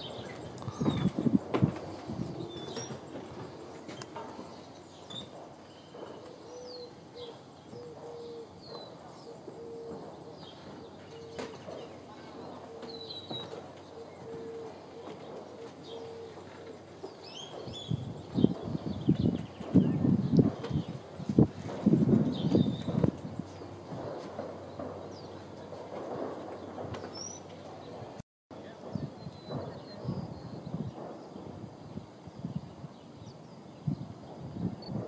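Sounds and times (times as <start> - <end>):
small birds chirping: 0.0 - 1.3, 3.8 - 21.1
footsteps on wooden boards: 0.7 - 6.3
dove cooing: 6.2 - 8.6, 9.3 - 10.4, 12.6 - 16.5.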